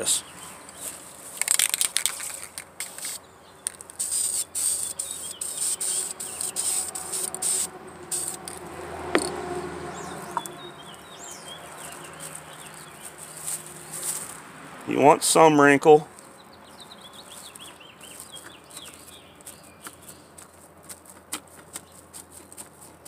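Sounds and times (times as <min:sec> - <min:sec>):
spray paint can hissing: 0:01.4 - 0:09.3.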